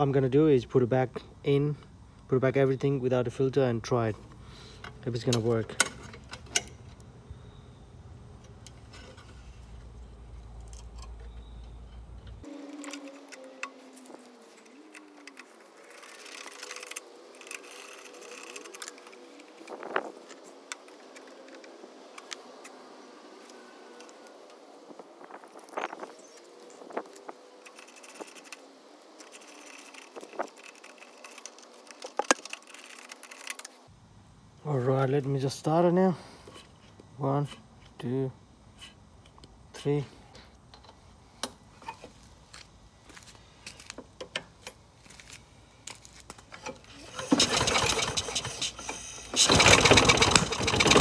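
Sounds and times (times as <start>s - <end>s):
hand tool metallic clicks and scrapes: 10.4s - 22.8s, 25.8s - 33.8s.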